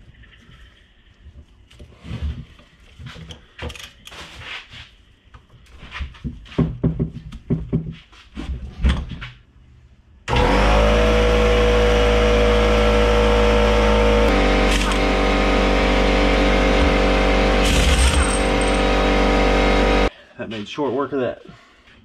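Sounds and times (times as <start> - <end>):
impact wrench running: 11.3 - 20.1.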